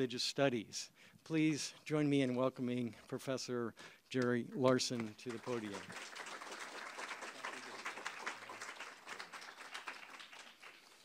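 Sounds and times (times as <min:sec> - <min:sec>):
audience applauding: 0:05.0 - 0:11.0.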